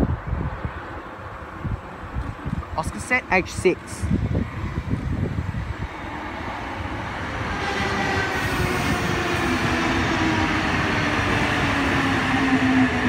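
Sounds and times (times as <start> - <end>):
electric train rumble: 4.1 - 13.0.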